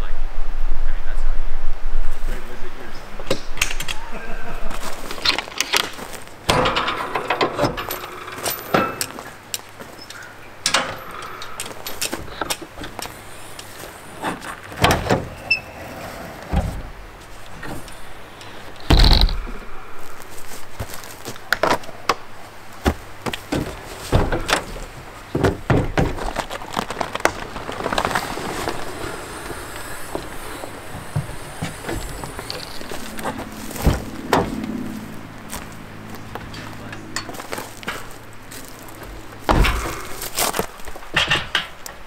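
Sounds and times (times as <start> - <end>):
latches clicking and clunking: 5.2 - 19.6, 23.0 - 26.2, 41.0 - 42.0
heavy tailgate thud: 6.5 - 9.2, 14.2 - 15.6, 16.4 - 17.9, 22.8 - 26.4, 39.4 - 40.4.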